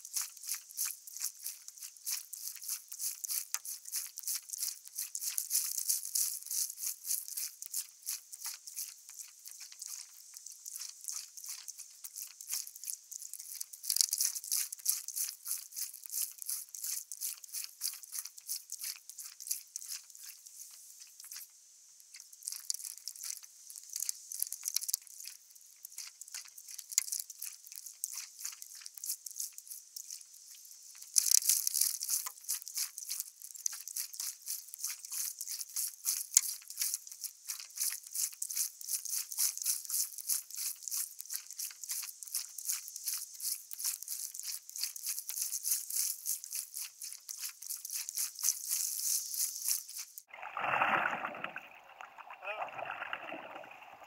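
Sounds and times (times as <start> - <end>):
water crackling against paddleboard: 22.1 - 54.0.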